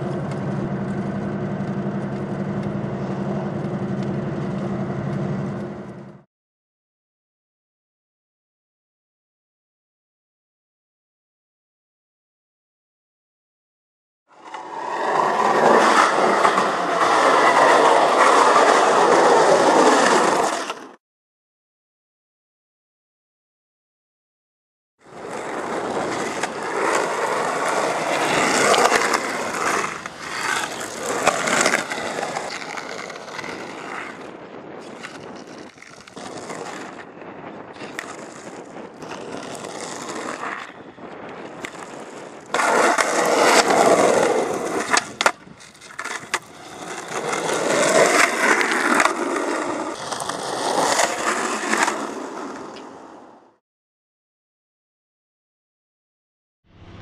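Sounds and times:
skateboard clacks: 0.0 - 6.2, 25.1 - 53.4
skateboard rolling on concrete: 0.0 - 6.3, 14.3 - 21.0, 25.0 - 53.6.

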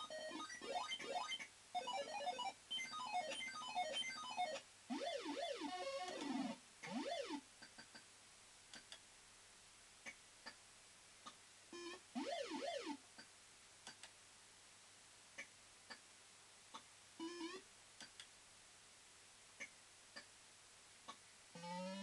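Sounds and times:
fruit machine beeps and warbling tones: 0.0 - 7.4, 11.8 - 13.0, 17.2 - 17.6.

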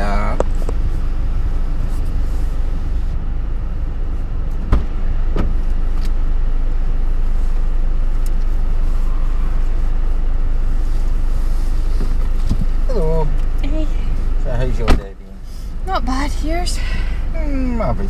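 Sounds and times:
car engine idling: 0.0 - 18.0
solid thump: 4.6 - 5.6.

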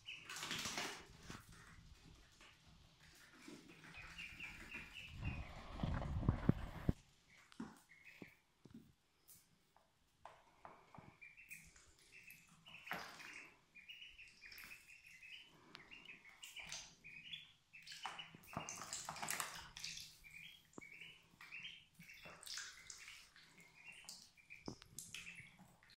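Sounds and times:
water splashing in plastic tub: 0.0 - 2.0, 11.6 - 13.6, 17.7 - 25.9
ducklings peeping: 0.0 - 8.4, 10.6 - 25.9.

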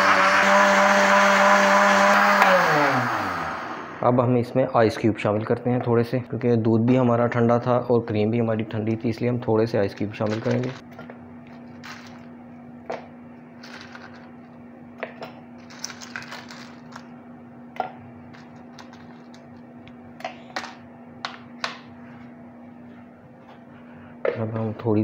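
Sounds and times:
steady low hum: 3.7 - 25.0
ice cubes clinking in glass jar: 15.6 - 17.0.

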